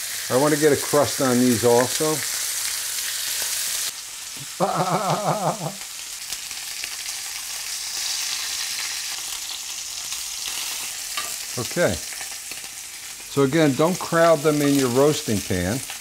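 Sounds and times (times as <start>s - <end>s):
meat sizzling in a skillet: 0.0s - 16.0s.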